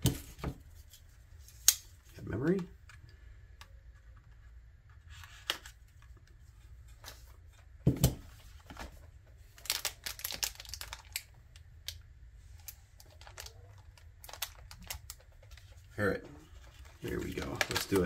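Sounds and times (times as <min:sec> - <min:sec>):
plastic packaging crinkling: 0:09.4 - 0:12.0, 0:12.6 - 0:15.7, 0:16.6 - 0:18.0.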